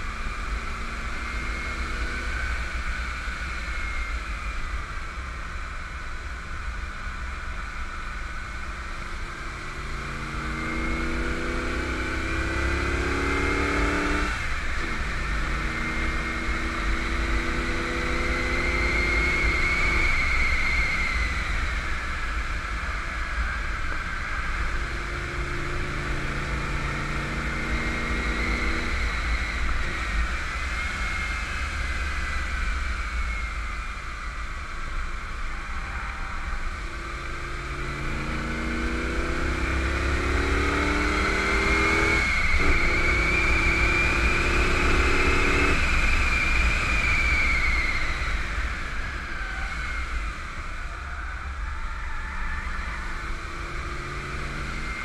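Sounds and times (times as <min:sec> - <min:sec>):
road noise: 0:00.0 - 0:55.0
car engine under power: 0:09.4 - 0:22.0, 0:24.4 - 0:32.2, 0:36.7 - 0:50.6, 0:53.2 - 0:55.0.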